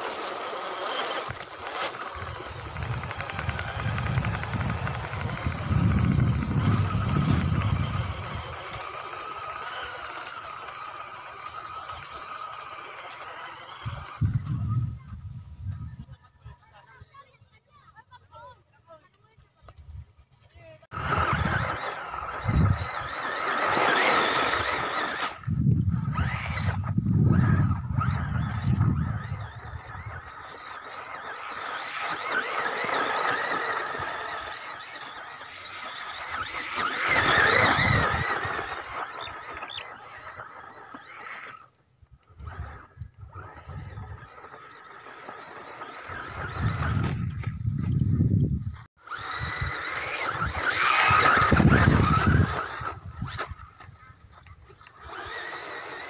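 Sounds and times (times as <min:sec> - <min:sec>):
electric motor whining: 0:00.0 - 0:15.0, 0:20.9 - 0:56.0
low rumbles of tyres: 0:00.0 - 0:15.8, 0:20.9 - 0:56.0
wind on microphone: 0:02.2 - 0:08.6, 0:13.8 - 0:16.2, 0:25.4 - 0:30.2, 0:46.1 - 0:54.4.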